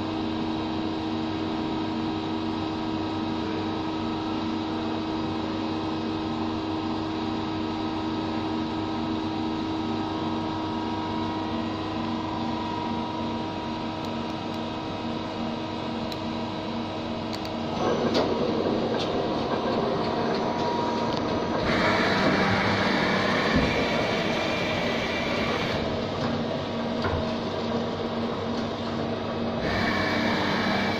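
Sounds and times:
lathe humming and whirring: 0:00.0 - 0:30.9
clicks: 0:17.3 - 0:18.3.

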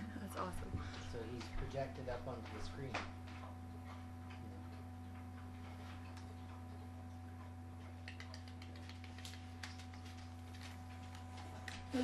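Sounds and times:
low electrical hum: 0:00.0 - 0:12.0
quick run of clicks: 0:08.0 - 0:11.8.

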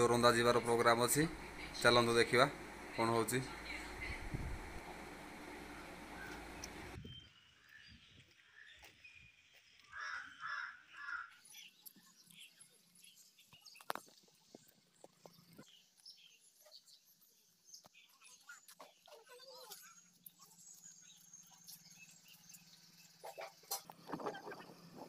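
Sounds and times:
harsh bird calls: 0:09.9 - 0:11.7.

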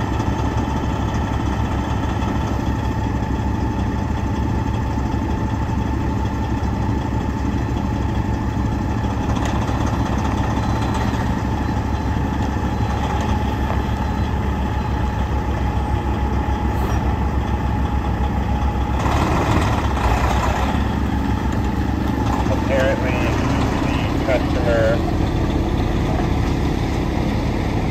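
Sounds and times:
diesel truck idling: 0:00.0 - 0:27.9.

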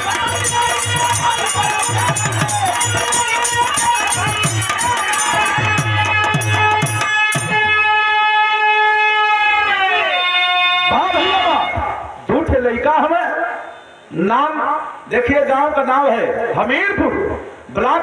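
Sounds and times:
rhythmic drum beat: 0:00.0 - 0:08.0.

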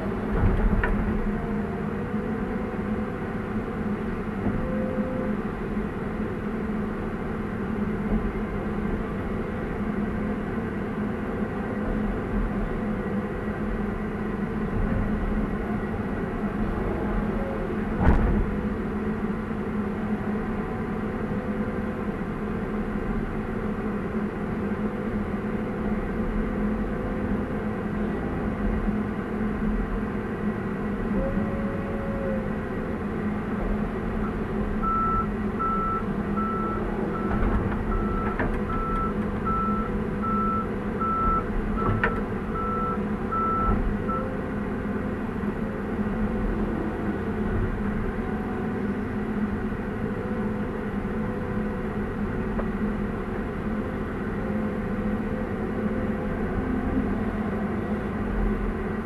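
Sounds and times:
excavator diesel engine running: 0:00.0 - 0:59.0
reversing alarm beeping: 0:34.2 - 0:44.3.

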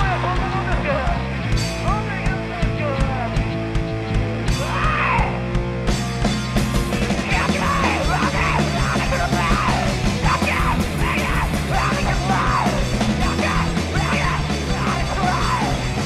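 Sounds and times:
singer yelling: 0:00.0 - 0:01.2, 0:04.5 - 0:05.6, 0:06.9 - 0:16.0
bass guitar: 0:00.0 - 0:16.0
drums: 0:00.0 - 0:16.0
electric guitar: 0:00.0 - 0:16.0.

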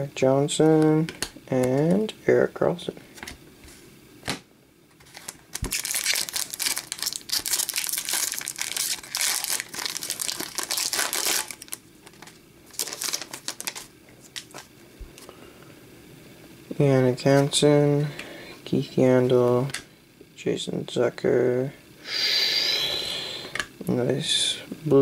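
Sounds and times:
foil wrapper crinkling: 0:05.0 - 0:14.7.

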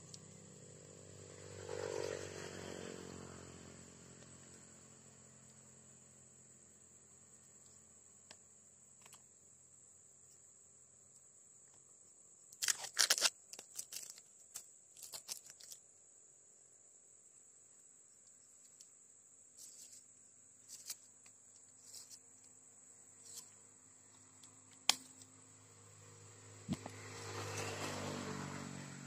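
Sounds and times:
insects droning: 0:00.0 - 0:29.0
rustling and handling noise: 0:12.6 - 0:15.8, 0:18.6 - 0:25.3.

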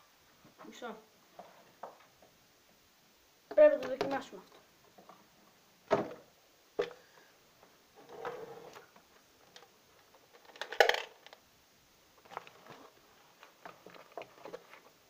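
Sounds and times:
small hard objects clattering: 0:09.5 - 0:11.4
handling rustle: 0:12.2 - 0:15.0.

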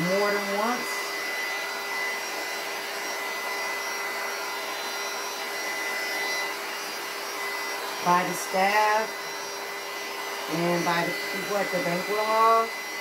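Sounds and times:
heat gun fan whining: 0:00.0 - 0:13.0.

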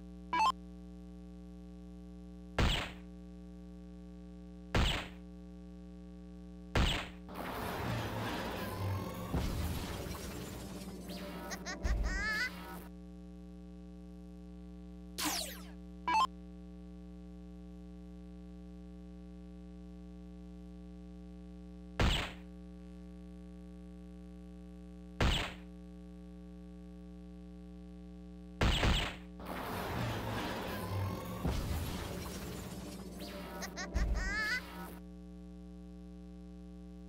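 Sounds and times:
darts striking board: 0:02.6 - 0:03.0, 0:04.8 - 0:05.2, 0:25.2 - 0:25.6
electronic machine hum: 0:05.6 - 0:16.6, 0:29.2 - 0:37.0
electronic hit effect: 0:06.8 - 0:12.8, 0:15.2 - 0:16.3, 0:28.6 - 0:35.0
falling electronic sweep: 0:07.3 - 0:11.7, 0:29.4 - 0:35.0.

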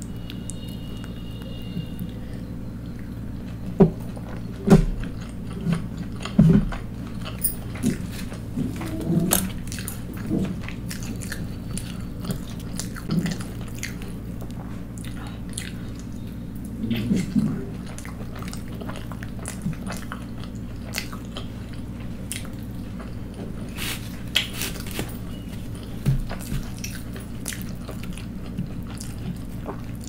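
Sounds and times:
faint low hum: 0:00.0 - 0:30.0
chewing and wet mouth clicks: 0:09.3 - 0:16.8, 0:17.8 - 0:23.2, 0:25.8 - 0:30.0.

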